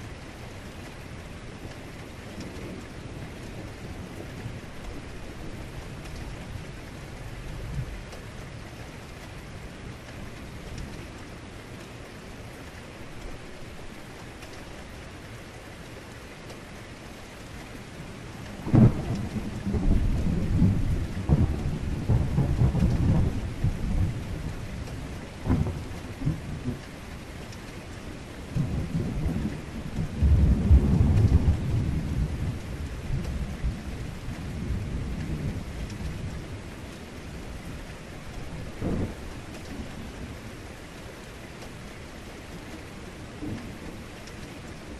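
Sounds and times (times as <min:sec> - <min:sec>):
heavy rain: 0:00.0 - 0:44.9
thunder cracks and rumbles: 0:18.6 - 0:26.9, 0:28.5 - 0:36.4, 0:38.5 - 0:39.9.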